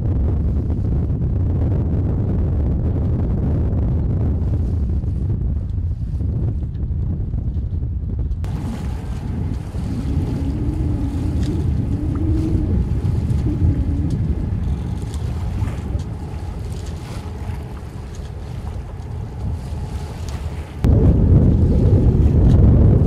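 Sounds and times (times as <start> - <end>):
water noise: 0.0 - 23.0
wind buffeting microphone: 0.0 - 23.0
faint steady hum: 8.4 - 23.0.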